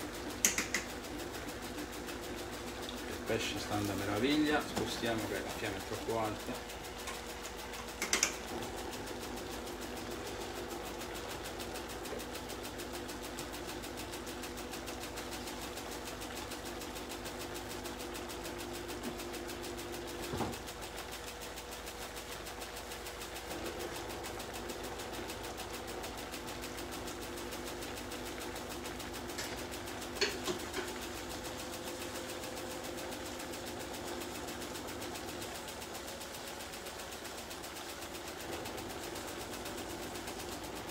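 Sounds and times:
faint clicks: 0:00.4 - 0:01.0.

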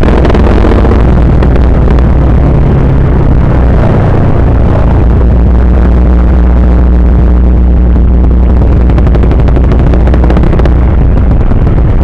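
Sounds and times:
wind rumble on microphone: 0:00.0 - 0:12.0
scooter engine running: 0:07.7 - 0:12.0.

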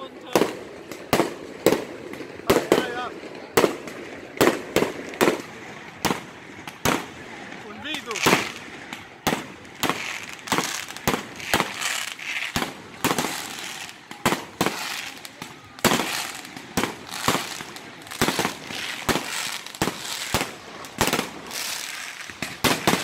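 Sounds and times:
hissing crackle of fireworks: 0:00.0 - 0:23.0
fireworks shells bursting: 0:08.0 - 0:23.0.

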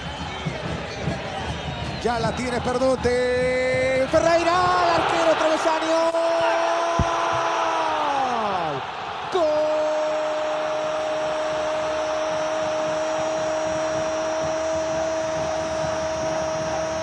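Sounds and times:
stadium crowd noise: 0:00.0 - 0:17.0
man shouting long goal cry: 0:04.2 - 0:17.0.

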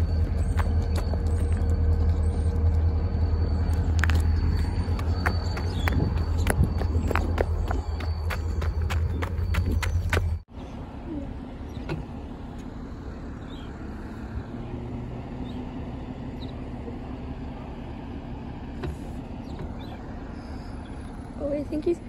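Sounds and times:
footsteps on gravel: 0:00.0 - 0:02.7, 0:03.6 - 0:10.4
low engine rumble: 0:00.0 - 0:22.0.

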